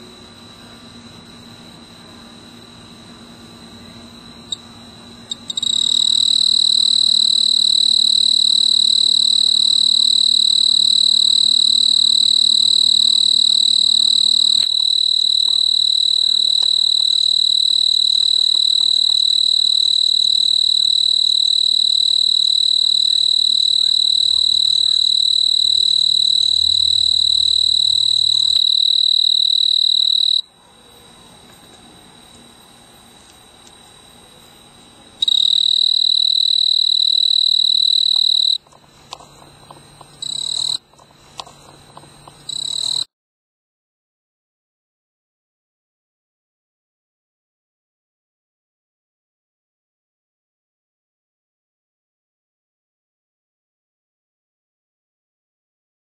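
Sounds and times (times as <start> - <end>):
cricket trilling: 0.0 - 43.1
faint cricket trill: 0.0 - 43.1.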